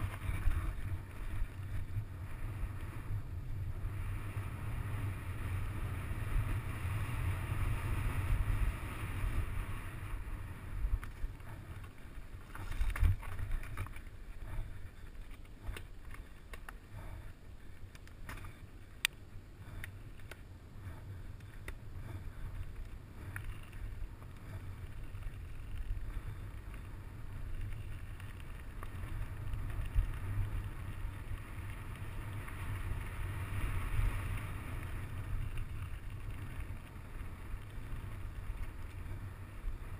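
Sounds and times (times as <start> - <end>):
bike clicking and rattling: 0.0 - 39.9
tyres rolling on gravel: 9.0 - 17.0, 21.3 - 39.9.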